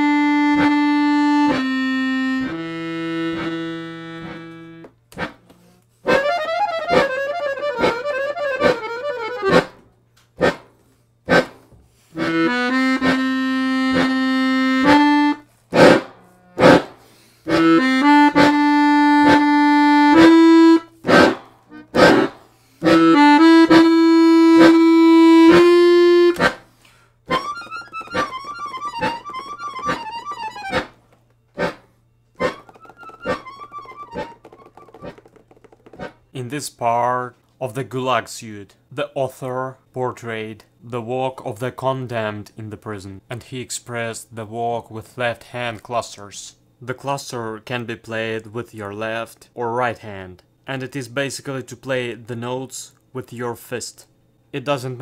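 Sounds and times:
accordion playing chords: 0:00.0 - 0:09.8, 0:11.3 - 0:35.3, 0:35.9 - 0:36.3.

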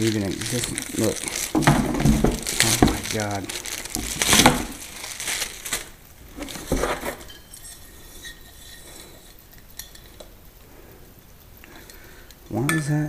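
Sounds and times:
plastic packaging rustling: 0:00.0 - 0:10.4.

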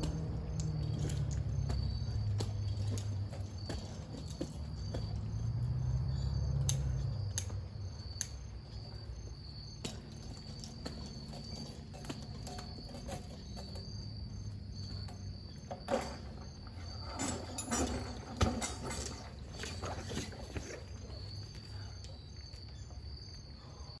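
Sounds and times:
crickets chirping: 0:00.0 - 0:24.0
knocks and rattles: 0:09.8 - 0:21.0.

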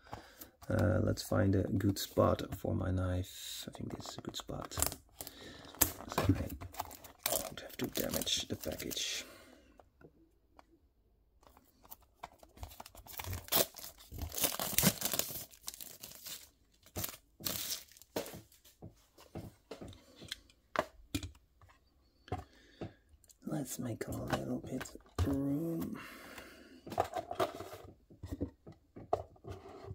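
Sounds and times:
plastic wrapping tearing and crinkling: 0:12.4 - 0:18.2.

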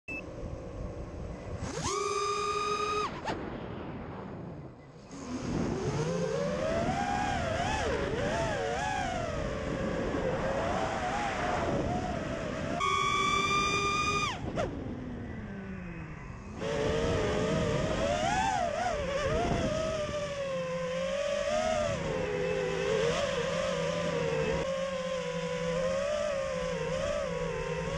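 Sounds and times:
quadcopter motors whining: 0:00.1 - 0:03.5, 0:04.9 - 0:27.9.

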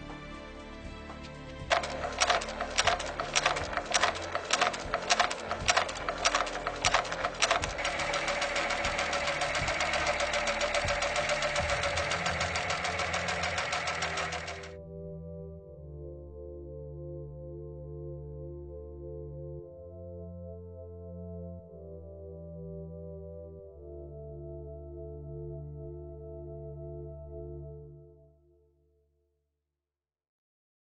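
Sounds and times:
industrial sewing machine stitching: 0:01.7 - 0:14.8.

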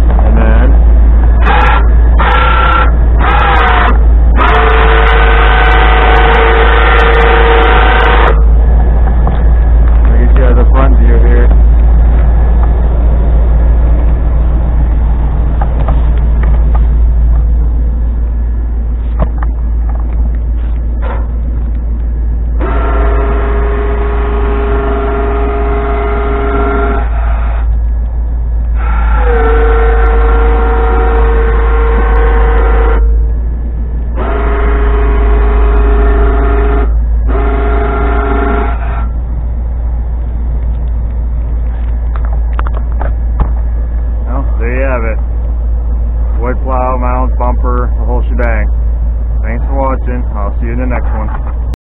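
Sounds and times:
truck engine idling: 0:00.0 - 0:51.8
electric winch whine: 0:20.7 - 0:40.9.

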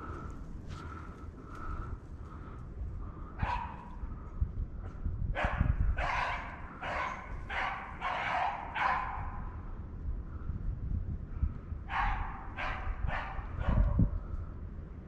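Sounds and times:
dog barking: 0:03.4 - 0:03.9, 0:05.4 - 0:09.5, 0:11.9 - 0:14.2.

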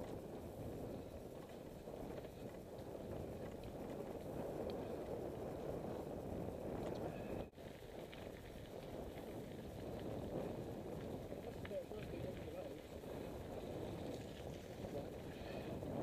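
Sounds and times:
bicycle tyres rumbling on stony track: 0:00.0 - 0:16.0
faint ticks: 0:00.8 - 0:06.0, 0:06.8 - 0:07.2.

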